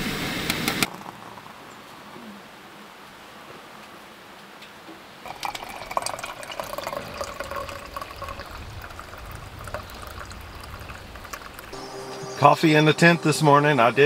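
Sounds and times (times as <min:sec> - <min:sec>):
coffee pouring into metal mug: 0:05.3 - 0:11.8
hot water pouring from kettle: 0:05.3 - 0:11.8.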